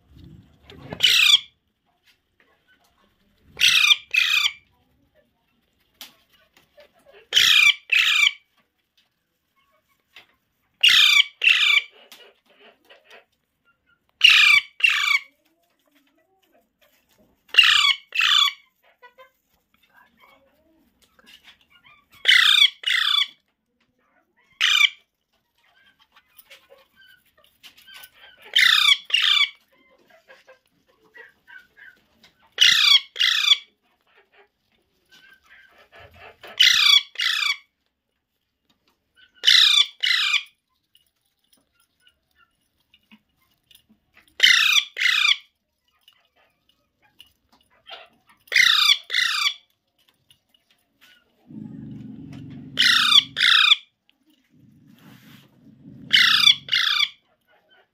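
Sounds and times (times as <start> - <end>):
parakeet squawking: 0.8 - 1.5, 3.6 - 4.6, 7.3 - 8.4, 10.8 - 11.9, 14.2 - 15.2, 17.5 - 18.6, 22.2 - 23.4, 32.6 - 33.7, 36.5 - 37.6, 39.4 - 40.4, 52.7 - 53.9, 56.0 - 57.2.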